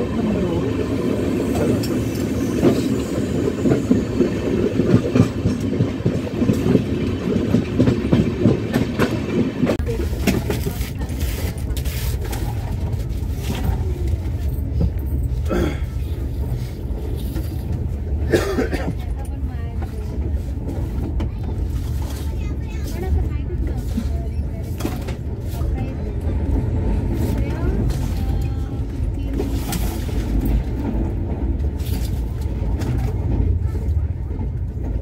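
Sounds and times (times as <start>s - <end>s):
train wheels clattering on rails: 1.5s - 35.0s.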